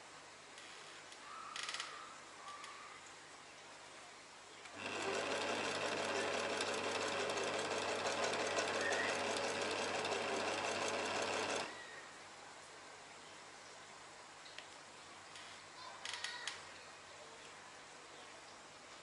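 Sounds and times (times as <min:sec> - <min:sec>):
electric sewing machine running: 0:04.7 - 0:11.8.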